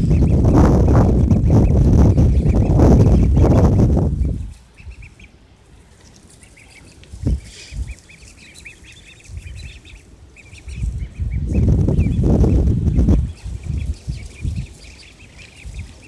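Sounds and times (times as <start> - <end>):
low rumble: 0.0 - 4.5
ducklings peeping: 0.0 - 16.0.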